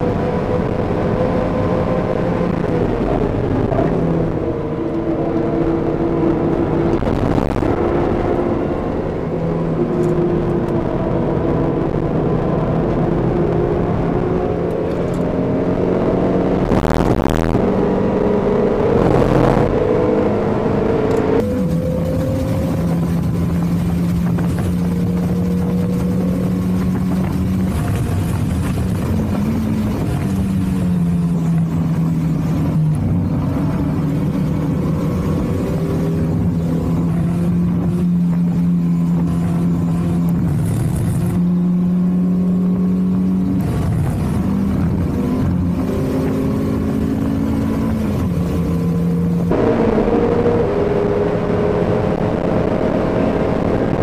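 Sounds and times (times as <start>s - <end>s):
car engine at high revs: 0.0s - 54.0s.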